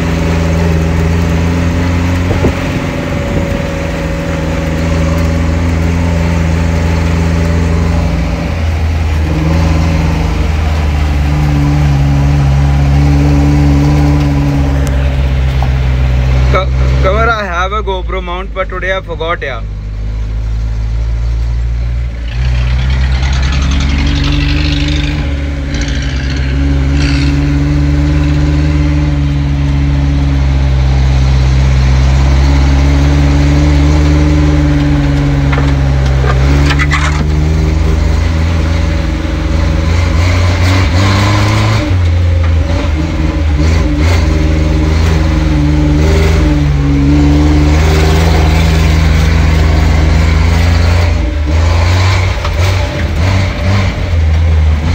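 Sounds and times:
car engine under load: 0:00.0 - 0:54.9
knocks and clatters: 0:34.6 - 0:38.6.

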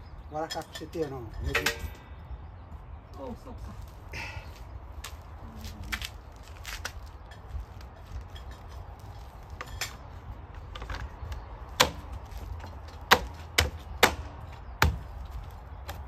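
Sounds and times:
tools clanking on metal: 0:00.4 - 0:02.1.

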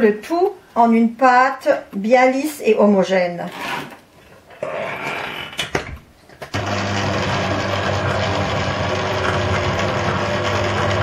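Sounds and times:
beater beating dough: 0:06.6 - 0:11.0
stand mixer motor humming: 0:06.6 - 0:11.0.

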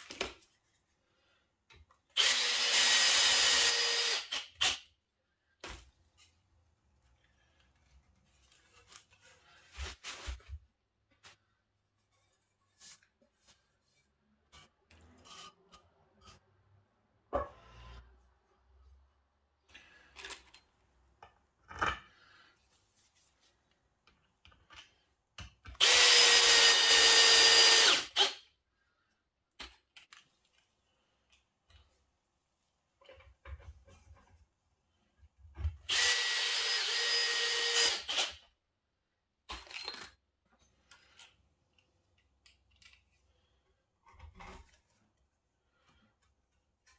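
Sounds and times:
drill running into wood: 0:02.2 - 0:04.7, 0:25.8 - 0:28.4, 0:35.9 - 0:38.3.

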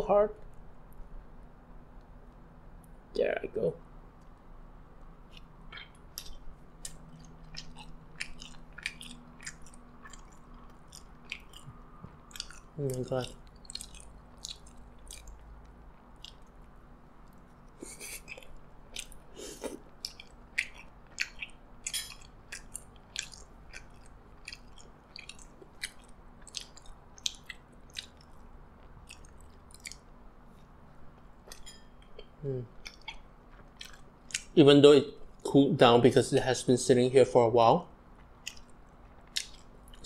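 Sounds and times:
wet mouth chewing smacks: 0:05.3 - 0:16.7, 0:17.3 - 0:30.1, 0:32.2 - 0:34.6, 0:38.2 - 0:40.0.

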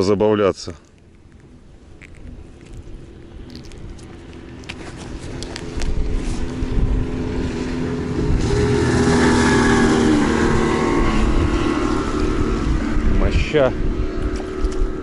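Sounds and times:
motorboat engine hum: 0:00.8 - 0:15.0
rushing noise: 0:05.2 - 0:14.1.

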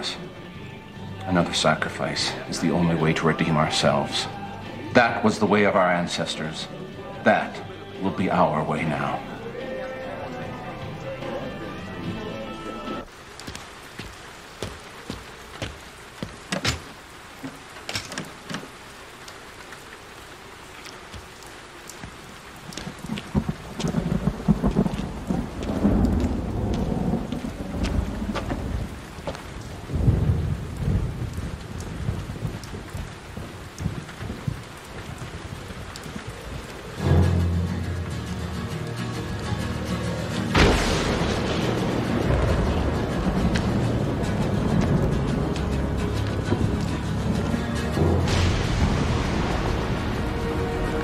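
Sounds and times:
heavy rain: 0:00.0 - 0:51.0
water drips and splashes: 0:13.0 - 0:39.4, 0:40.5 - 0:51.0
low rolling thunder: 0:22.6 - 0:38.2, 0:40.5 - 0:51.0.

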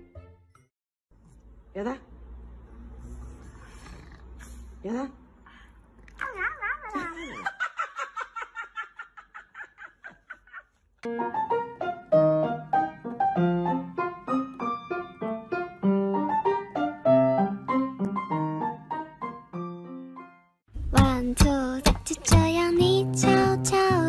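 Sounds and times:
piano melody: 0:11.1 - 0:24.0.

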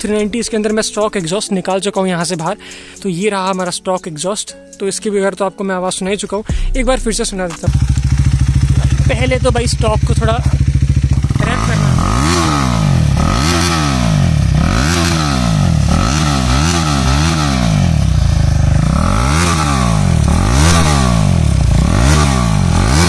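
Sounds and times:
loud motorcycle engine revving: 0:07.6 - 0:23.0.

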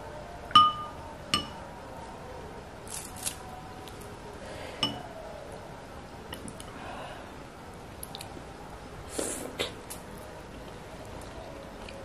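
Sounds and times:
spoon clinking glass bowl: 0:00.6 - 0:01.6.

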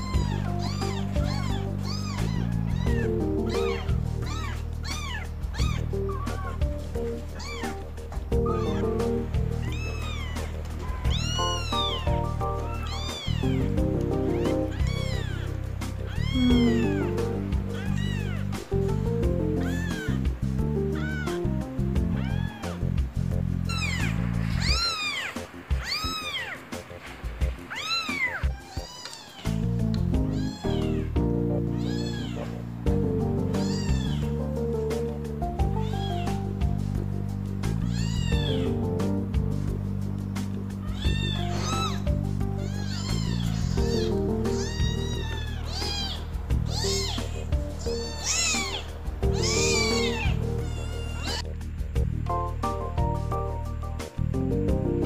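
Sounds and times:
kitten mewing: 0:00.0 - 0:08.9, 0:09.6 - 0:18.7, 0:19.5 - 0:20.2, 0:20.8 - 0:21.4, 0:22.0 - 0:22.9, 0:23.7 - 0:26.6, 0:27.7 - 0:32.6, 0:33.4 - 0:34.4, 0:35.6 - 0:36.5, 0:37.7 - 0:38.8, 0:40.8 - 0:51.5
background music: 0:00.0 - 0:55.0.

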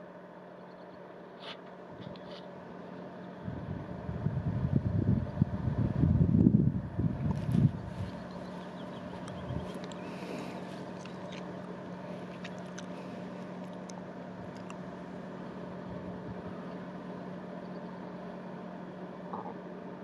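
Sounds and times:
ferry engine humming: 0:00.0 - 0:20.0
faint clicks: 0:09.2 - 0:10.1.

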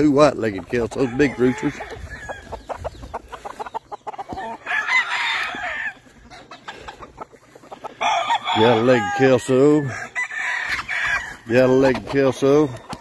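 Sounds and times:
rooster clucking: 0:00.0 - 0:13.0
rooster crowing: 0:01.0 - 0:02.5, 0:04.4 - 0:06.0, 0:07.9 - 0:11.5.

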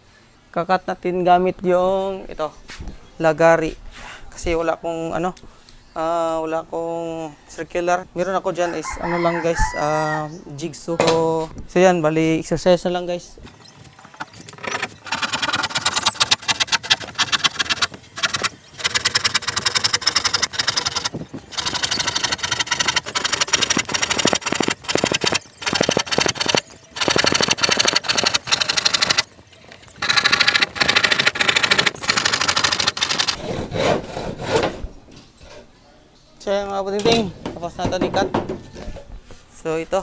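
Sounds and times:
hand saw cutting plywood: 0:14.0 - 0:29.3, 0:29.9 - 0:34.8.

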